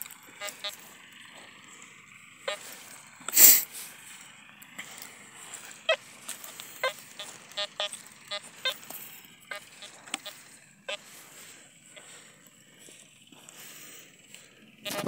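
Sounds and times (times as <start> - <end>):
metal detector beeps: 0.0 - 3.7, 4.8 - 12.2.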